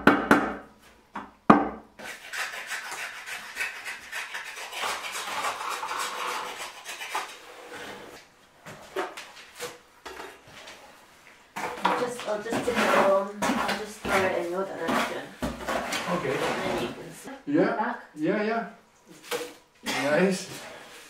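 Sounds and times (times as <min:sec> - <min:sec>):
trowel scraping wet cement: 0:12.5 - 0:16.9.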